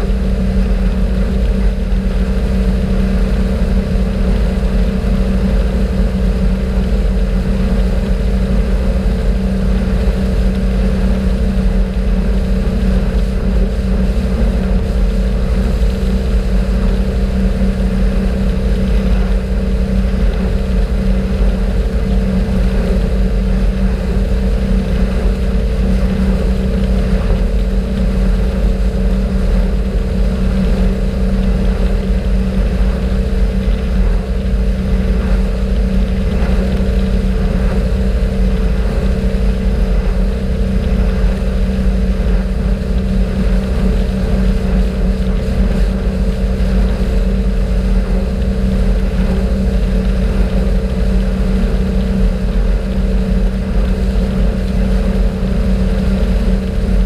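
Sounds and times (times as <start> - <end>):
motorboat engine droning: 0.0 - 57.0
water rushing from wake: 0.0 - 57.0
wind on microphone: 0.0 - 57.0.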